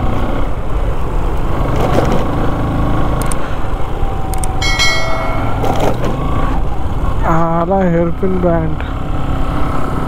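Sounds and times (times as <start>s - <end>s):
road noise: 0.0s - 10.0s
click: 3.2s - 3.4s, 4.3s - 4.6s
motorcycle engine running: 4.1s - 7.5s
bell-like ringing chime: 4.6s - 6.0s.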